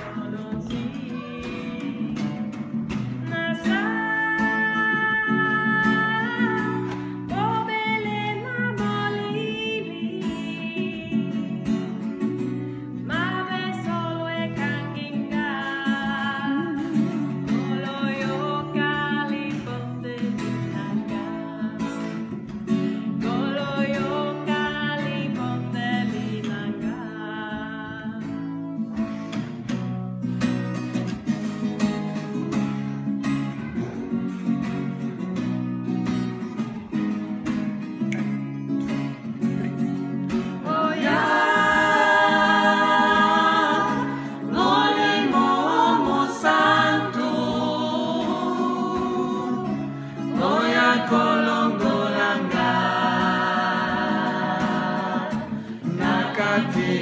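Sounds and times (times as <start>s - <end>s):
woman singing a hymn: 0.0s - 2.6s, 3.2s - 11.7s, 13.0s - 22.0s, 23.1s - 28.6s, 40.6s - 57.0s
acoustic guitar strumming: 0.0s - 57.0s.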